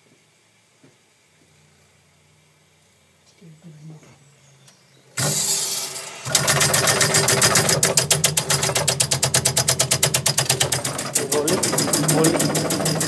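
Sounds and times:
valve rattling chatter: 0:05.2 - 0:13.0.

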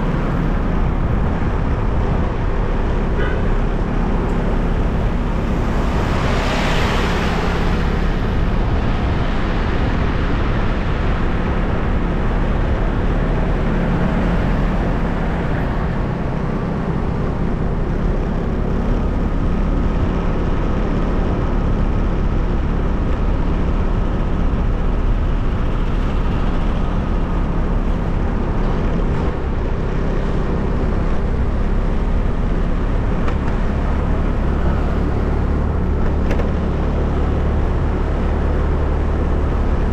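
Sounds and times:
motor vehicle rumbling on road: 0:00.0 - 0:39.9.

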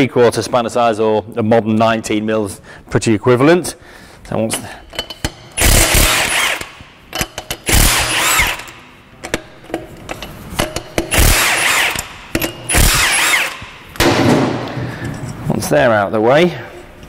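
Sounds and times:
cordless impact tool whining: 0:05.6 - 0:09.5, 0:10.6 - 0:14.0.

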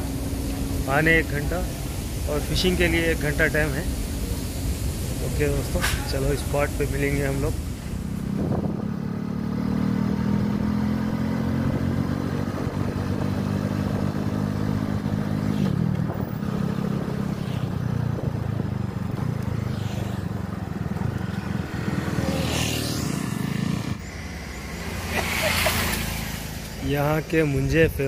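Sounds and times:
motorcycle engine running: 0:07.7 - 0:25.2.

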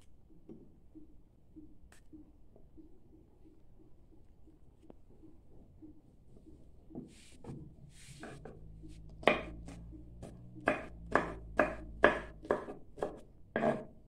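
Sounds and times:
knife chopping on wooden board: 0:08.2 - 0:14.0.

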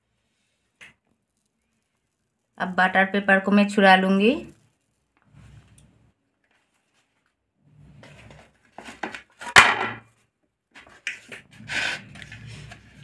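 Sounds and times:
baking paper crackling and rustling: 0:00.0 - 0:07.4.

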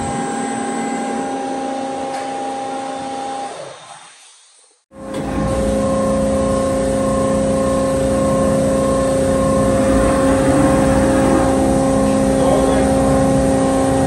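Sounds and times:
pulsing high tone: 0:07.1 - 0:13.9
bandsaw humming: 0:09.2 - 0:13.4.

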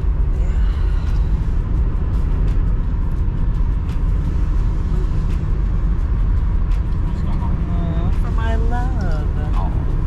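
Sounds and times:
car engine and tyre rumble: 0:00.0 - 0:10.0
light ticks: 0:06.6 - 0:07.4, 0:08.9 - 0:09.8.

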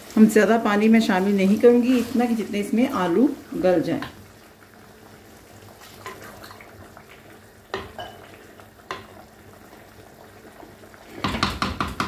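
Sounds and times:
curry sizzling: 0:00.0 - 0:12.0
spoon knocking clay pot: 0:11.2 - 0:12.0.

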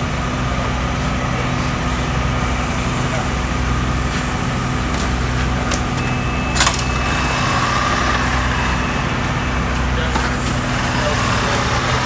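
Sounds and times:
engine idling: 0:00.0 - 0:12.0
sharp metallic clank: 0:06.5 - 0:07.0.

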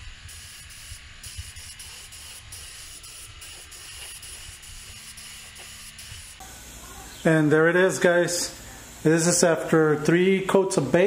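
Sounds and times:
spray gun hissing: 0:00.0 - 0:07.1, 0:08.2 - 0:09.9.

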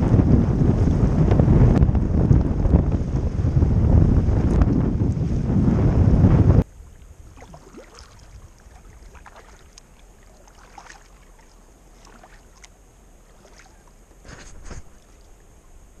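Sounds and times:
kayak paddle splashing: 0:06.7 - 0:15.6.

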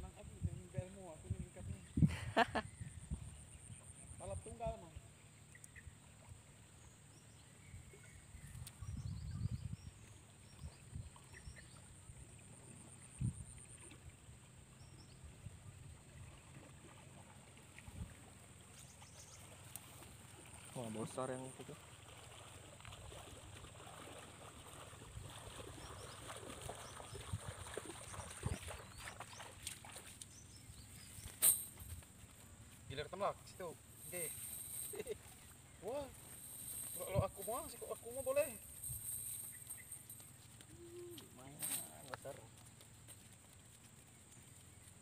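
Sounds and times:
wind rumble on microphone: 0:00.0 - 0:04.6, 0:07.7 - 0:11.6, 0:13.0 - 0:13.6, 0:17.8 - 0:18.2, 0:24.7 - 0:29.2
faint bird chirps: 0:01.8 - 0:12.1, 0:34.1 - 0:42.0
water sloshing: 0:16.1 - 0:31.4.

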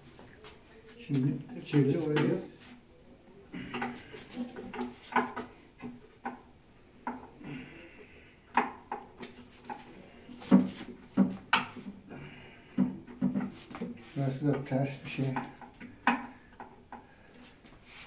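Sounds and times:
knocks and clatter of sink parts: 0:12.7 - 0:13.6.

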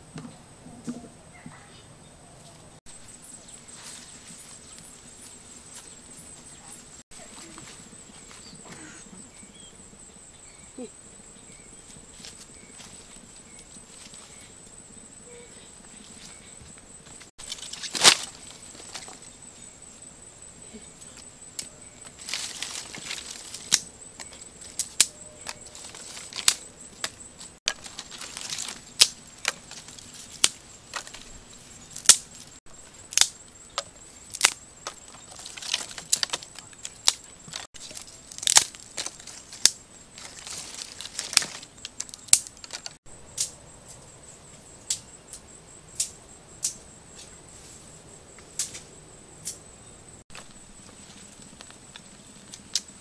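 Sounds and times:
twigs cracking and snapping: 0:17.4 - 0:19.3, 0:21.1 - 0:31.3, 0:31.9 - 0:43.6
dry leaves rustling: 0:17.4 - 0:19.6, 0:21.6 - 0:33.4, 0:34.2 - 0:43.0.

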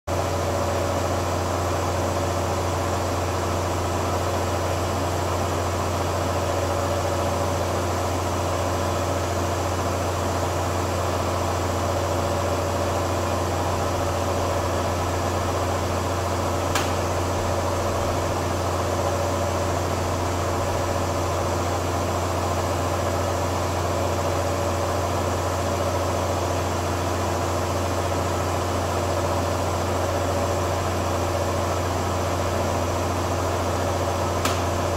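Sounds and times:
sharp click: 0:16.7 - 0:17.0, 0:34.4 - 0:34.7.

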